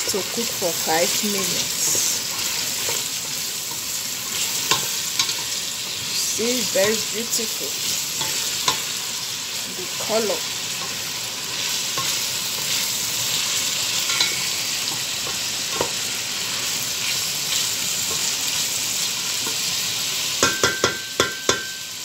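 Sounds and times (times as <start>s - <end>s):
vegetables sizzling in a pot: 0.0s - 22.0s
sharp knocks on ringing steel pot: 20.4s - 21.8s.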